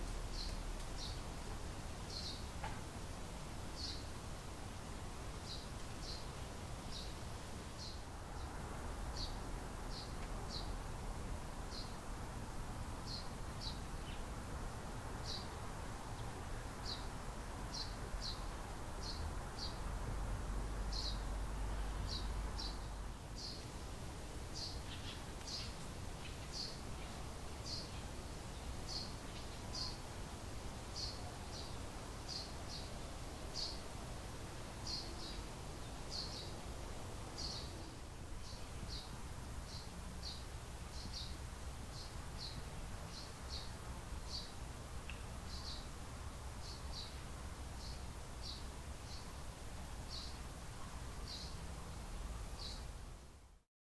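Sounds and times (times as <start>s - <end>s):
small bird chirping: 0.3s - 1.3s, 2.1s - 2.5s, 3.8s - 4.1s, 5.4s - 6.3s, 17.7s - 19.8s, 20.9s - 21.2s, 22.0s - 23.7s, 24.6s - 30.0s, 31.0s - 33.8s, 34.8s - 36.6s, 37.4s - 45.9s, 50.1s - 51.6s.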